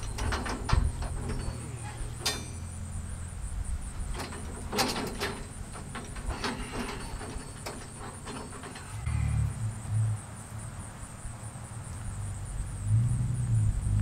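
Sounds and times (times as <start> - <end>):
scaffold frame clanking: 0.0 - 9.4
caster wheels rolling rumble: 0.0 - 10.5.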